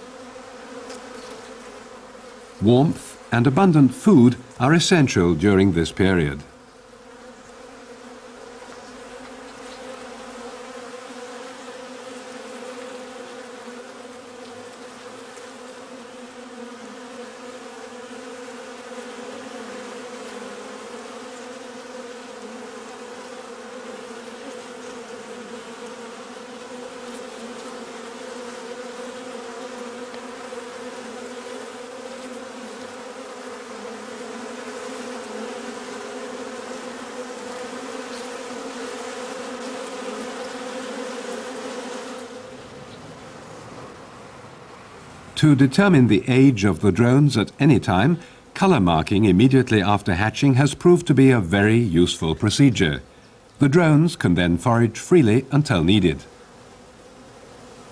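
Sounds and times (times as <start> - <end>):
honeybees buzzing: 0.0 - 57.9.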